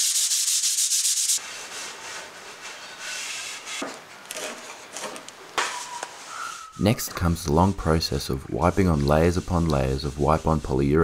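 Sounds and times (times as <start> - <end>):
sandpaper rubbing wood: 0.0 - 3.8, 7.2 - 11.0.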